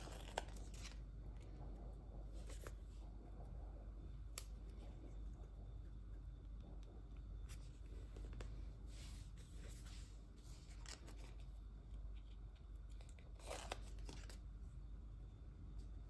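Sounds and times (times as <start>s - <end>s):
paper rustling and scratching: 0.0s - 1.0s, 7.4s - 14.4s.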